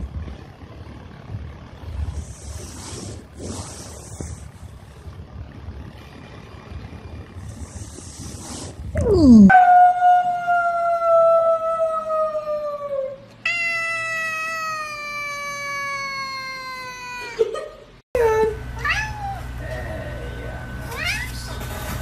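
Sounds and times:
cat yowling: 0:12.3 - 0:17.4, 0:18.8 - 0:19.5.

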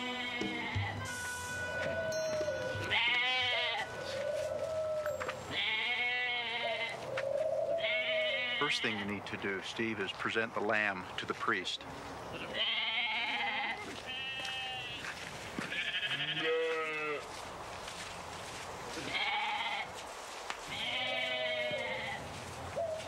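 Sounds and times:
lamb bleating: 0:00.0 - 0:02.1, 0:02.8 - 0:03.9, 0:05.5 - 0:07.0, 0:07.8 - 0:09.0, 0:12.4 - 0:15.0, 0:15.7 - 0:17.2, 0:19.0 - 0:19.9, 0:20.7 - 0:22.2.

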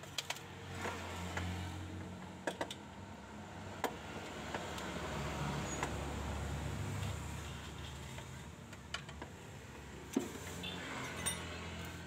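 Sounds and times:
wrench clinking on bolts: 0:11.0 - 0:11.6.

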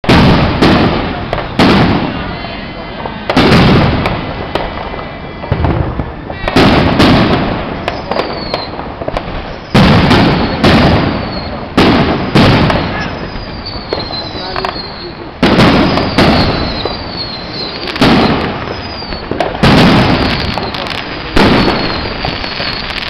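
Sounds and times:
firework pops and crackle: 0:00.0 - 0:02.2, 0:03.0 - 0:23.0
firework booms echoing: 0:00.0 - 0:23.0
faint falling whistle: 0:07.9 - 0:08.8, 0:13.0 - 0:15.3, 0:15.9 - 0:17.9, 0:18.7 - 0:19.3.

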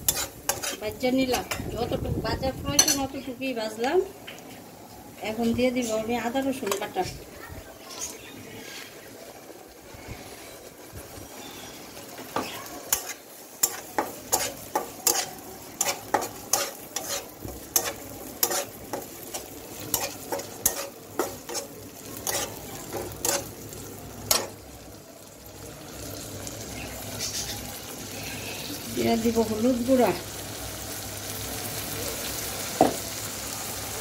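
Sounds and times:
spatula scraping metal pan: 0:00.0 - 0:01.6, 0:12.9 - 0:23.5
oil sizzling: 0:00.0 - 0:34.0.

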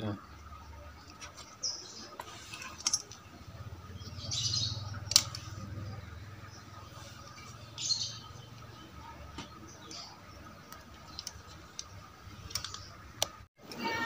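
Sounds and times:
scattered clicks: 0:10.7 - 0:13.5.

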